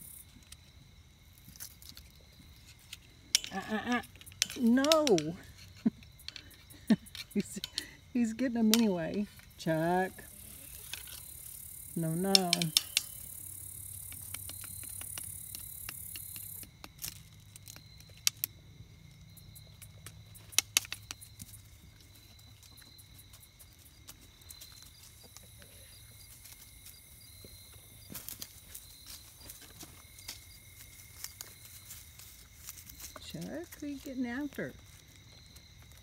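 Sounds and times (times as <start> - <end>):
sharp clicks: 12.0 - 18.5.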